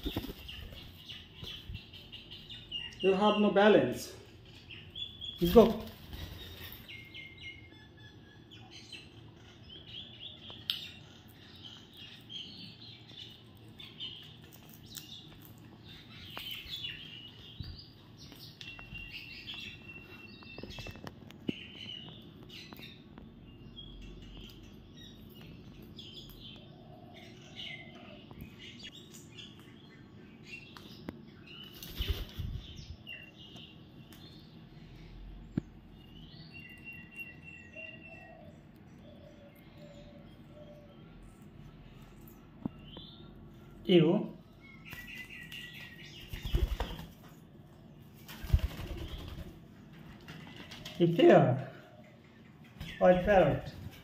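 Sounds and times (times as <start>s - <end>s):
parakeets chirping and squawking: 4.2s - 13.2s.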